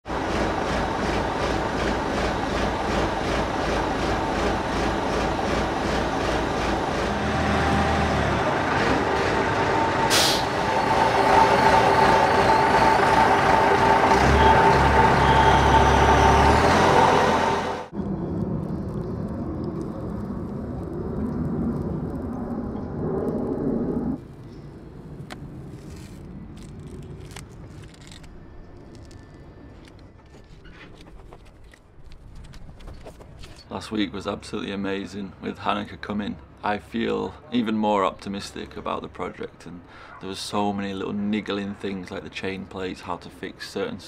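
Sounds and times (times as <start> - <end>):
crane diesel engine droning: 0.1 - 18.6.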